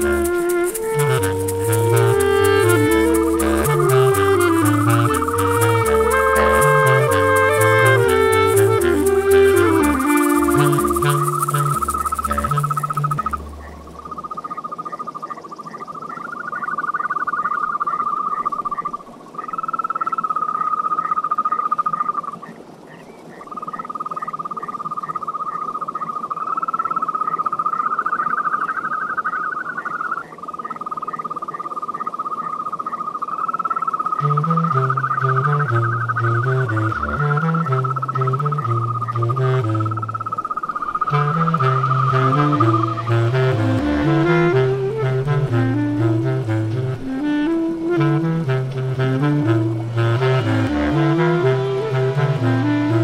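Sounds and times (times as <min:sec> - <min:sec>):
bass clarinet line: 0:00.0 - 0:14.2, 0:34.2 - 0:53.0
toads trilling: 0:10.4 - 0:43.1.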